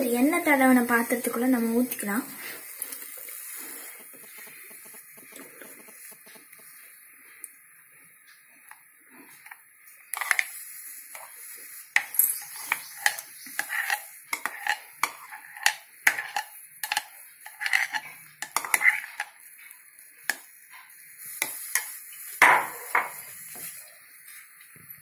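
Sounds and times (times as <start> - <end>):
spoon scraping steel bowl: 9.4 - 10.5, 12.0 - 19.4.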